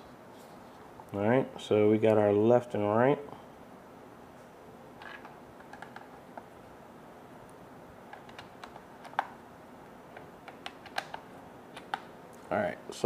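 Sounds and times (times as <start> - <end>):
cable plugs clicking into jacks: 10.2 - 11.2.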